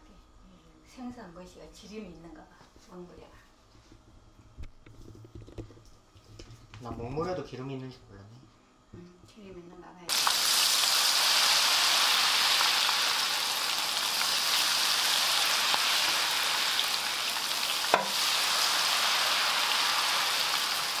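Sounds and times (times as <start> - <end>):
food deep-frying in oil: 10.1 - 21.0.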